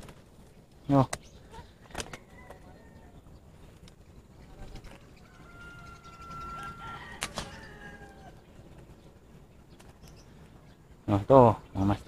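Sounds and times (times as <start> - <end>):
rooster crowing: 2.1 - 3.2, 5.2 - 8.5.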